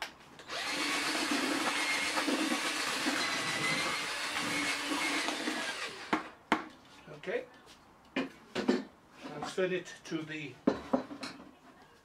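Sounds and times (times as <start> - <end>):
cordless drill motor hum: 0.4 - 6.1.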